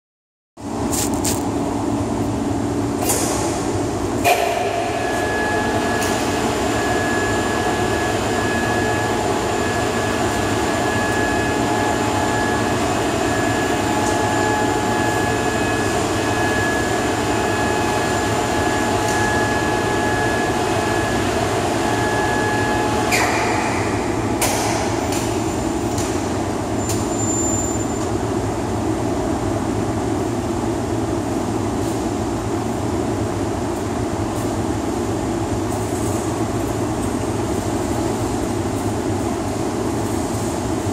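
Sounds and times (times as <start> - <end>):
overhead crane drive whine: 0.6 - 40.9
crane clunk: 3.0 - 8.9.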